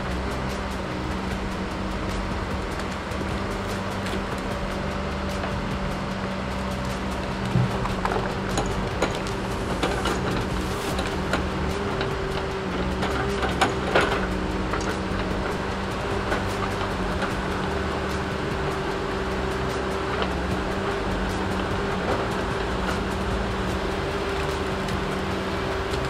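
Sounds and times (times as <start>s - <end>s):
logging machine diesel engines: 0.0s - 26.0s
logs knocking and clattering: 7.4s - 17.6s.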